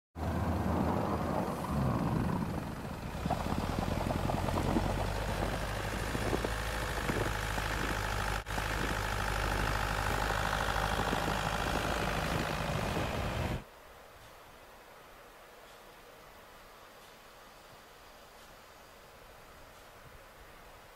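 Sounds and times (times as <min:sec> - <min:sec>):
car engine running: 0:00.2 - 0:13.6.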